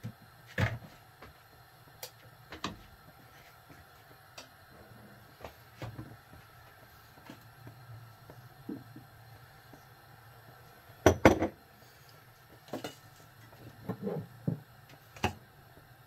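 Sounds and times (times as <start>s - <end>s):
faint low hum: 1.6s - 14.9s
kitchenware clinking and knocking: 11.0s - 11.6s.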